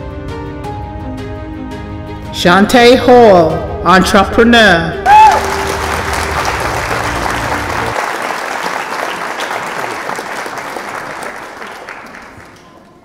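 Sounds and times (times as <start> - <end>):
music bed: 5.1 - 8.0
crowd applauding: 5.1 - 13.0.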